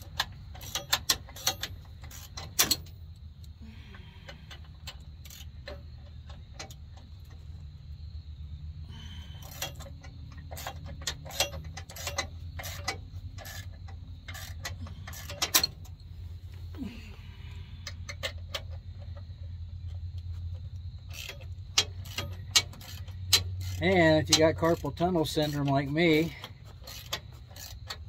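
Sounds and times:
wrench clicking and clinking: 0.0s - 3.0s, 4.9s - 6.8s, 9.4s - 16.0s, 21.1s - 28.0s
steady low hum: 0.0s - 28.0s.

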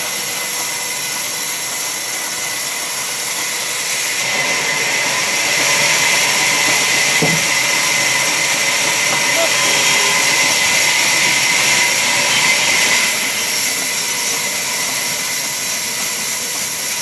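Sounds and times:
band saw cutting log: 0.0s - 17.0s
short knock: 7.2s - 7.5s.

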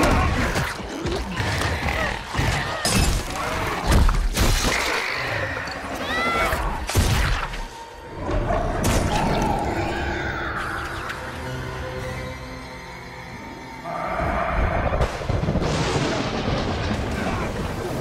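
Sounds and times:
background film score: 0.0s - 18.0s
rain: 15.2s - 18.0s.

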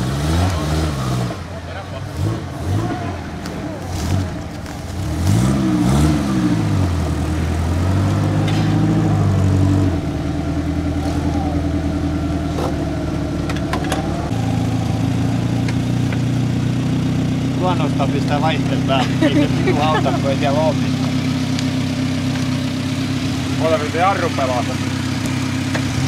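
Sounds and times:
off-road vehicle engine revving: 0.0s - 26.0s.

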